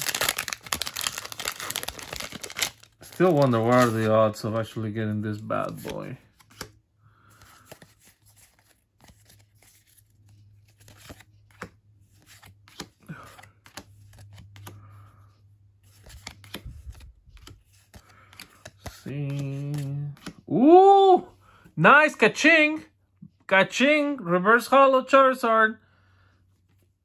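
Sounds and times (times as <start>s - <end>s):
cards sliding rustles: 0.0s - 4.6s, 5.4s - 20.5s.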